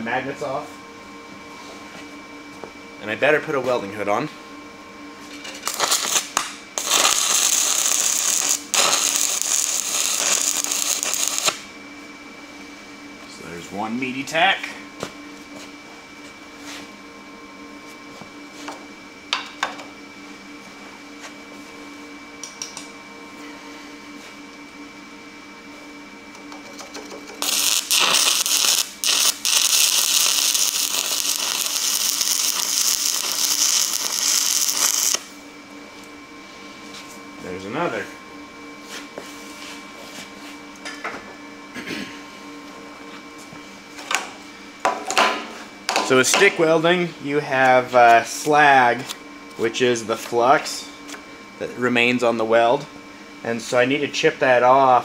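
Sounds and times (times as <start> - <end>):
cooling fan humming: 0.0 - 55.0
welding arc crackling: 5.6 - 11.7, 27.0 - 35.3.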